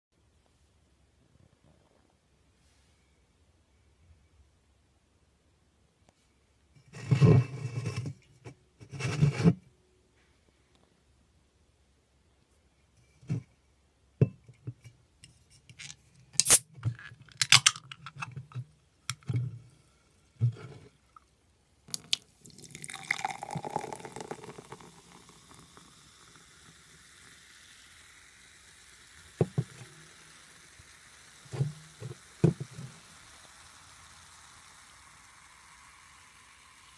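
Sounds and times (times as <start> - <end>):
can tab clicks and snaps: 15.7 - 16.6, 17.3 - 18.4, 21.9 - 22.3
soda fizzing: 16.4 - 16.6, 21.9 - 36.9
soda pouring into glass: 16.4 - 16.6, 21.9 - 36.9.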